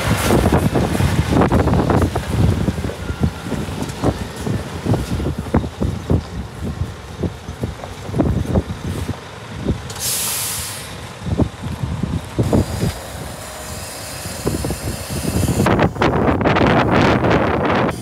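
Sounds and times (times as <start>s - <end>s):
dense crackling rush: 0.0s - 10.3s
wind buffeting microphone: 0.0s - 18.0s
short sharp hiss: 9.9s - 11.0s.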